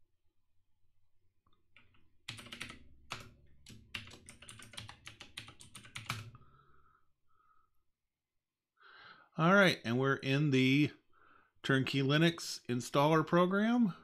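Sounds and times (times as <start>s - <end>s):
computer keyboard typing: 1.7s - 6.4s.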